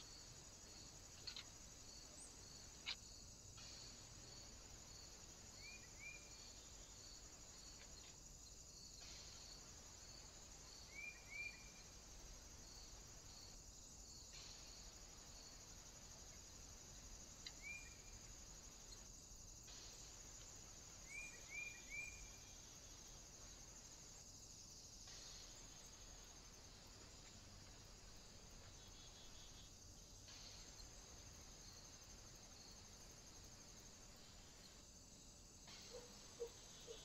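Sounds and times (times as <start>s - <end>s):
insect chorus chirping: 0.0s - 37.0s
small bird chirping: 1.1s - 1.6s.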